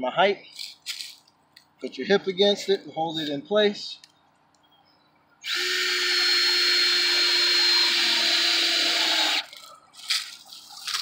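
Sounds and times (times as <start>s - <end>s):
rustling and handling noises: 0.4s - 4.6s, 9.5s - 11.0s
cordless drill driving screw: 5.4s - 9.5s.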